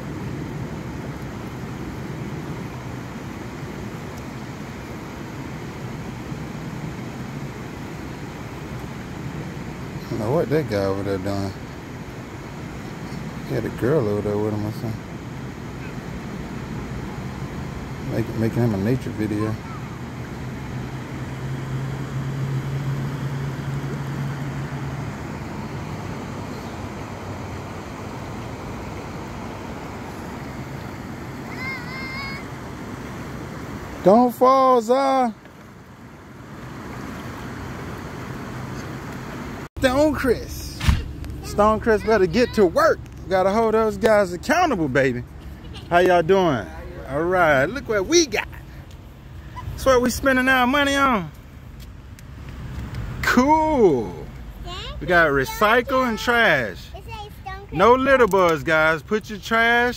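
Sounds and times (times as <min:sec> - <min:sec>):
river water rushing over rocks: 0:00.0 - 0:10.3, 0:10.9 - 0:13.4, 0:19.6 - 0:45.4.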